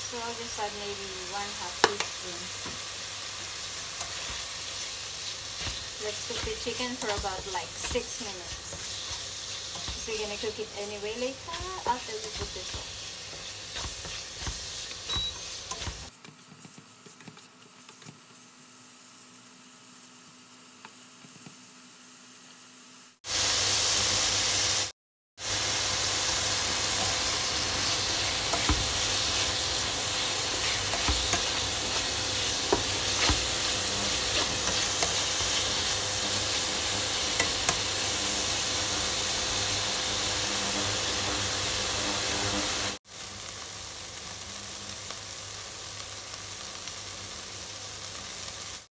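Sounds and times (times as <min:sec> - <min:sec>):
chicken sizzling in frying pan: 0:00.0 - 0:16.2, 0:23.2 - 0:48.9
spatula scraping and tapping pan: 0:05.6 - 0:10.4, 0:11.5 - 0:18.2, 0:27.7 - 0:38.4.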